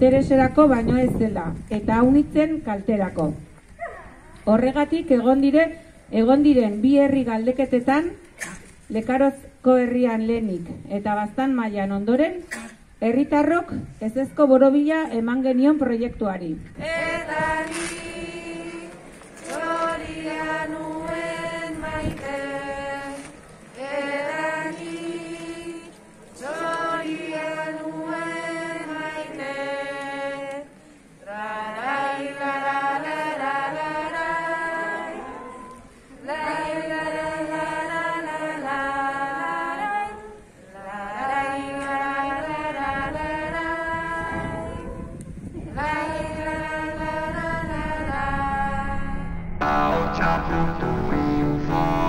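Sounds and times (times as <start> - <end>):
person singing long notes: 49.6 - 52.0.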